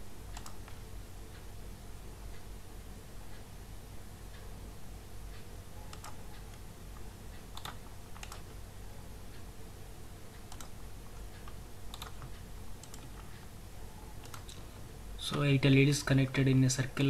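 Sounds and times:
computer mouse clicking: 0.3s - 0.8s, 5.3s - 8.6s, 10.3s - 13.5s, 14.2s - 16.4s.

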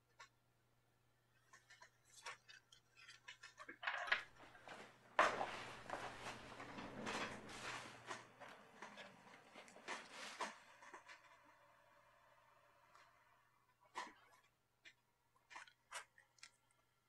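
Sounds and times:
objects clicking and knocking: 1.5s - 11.5s.

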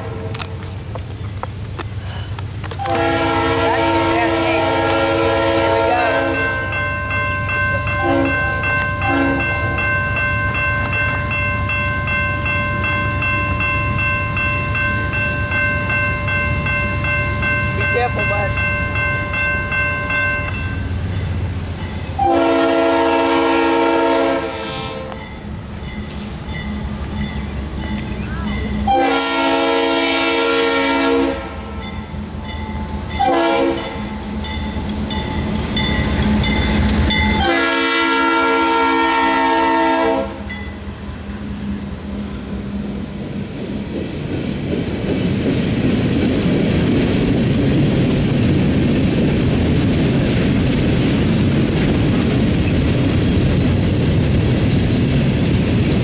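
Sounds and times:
train rumbling: 0.0s - 56.0s
locomotive horn blasts: 2.8s - 6.6s, 8.0s - 9.6s, 22.2s - 25.2s, 28.9s - 31.8s, 33.2s - 34.0s, 37.4s - 40.5s
train wheels clattering: 31.8s - 56.0s.

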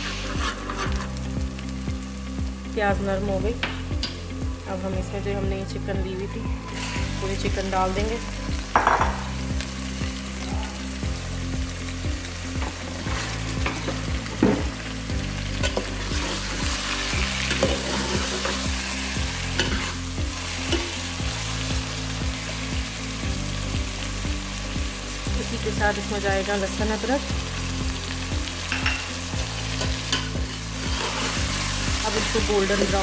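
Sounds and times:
chicken sizzling in hot oil: 0.0s - 33.0s.

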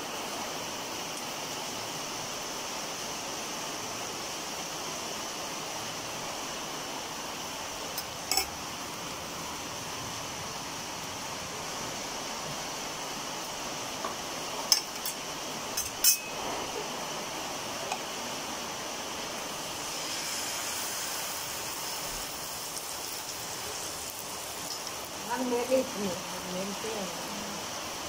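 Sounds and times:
steady hiss: 0.0s - 28.0s
metal cookware clinks: 8.3s - 8.5s, 15.8s - 16.4s.

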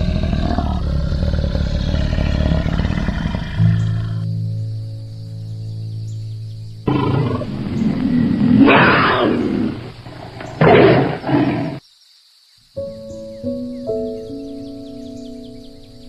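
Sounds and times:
tiger roaring: 0.0s - 4.2s, 6.8s - 11.8s
music with held notes: 4.2s - 7.9s, 12.8s - 16.0s.

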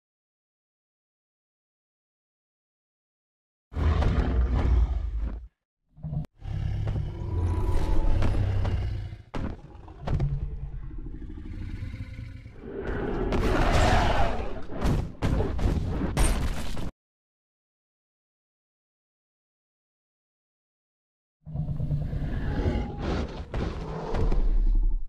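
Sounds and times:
dinosaur roar and growl: 3.8s - 14.8s, 21.5s - 25.0s.

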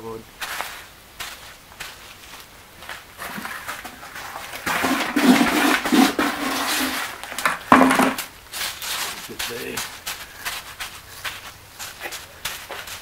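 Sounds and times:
gritty scraping of concrete: 3.2s - 13.0s.

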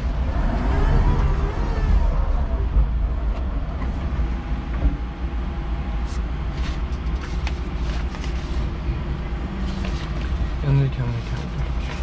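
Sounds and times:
forklift driving rumble: 0.0s - 12.0s.

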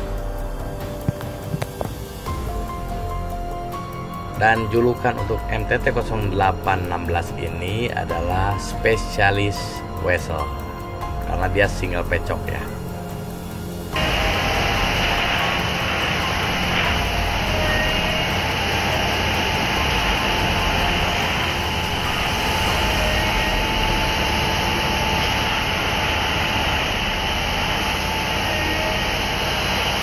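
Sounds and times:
track tamping machine running: 13.9s - 30.0s.

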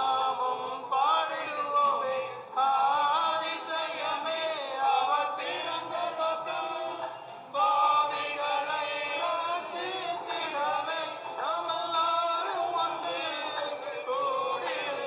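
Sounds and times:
men singing a carol together: 0.0s - 15.0s.

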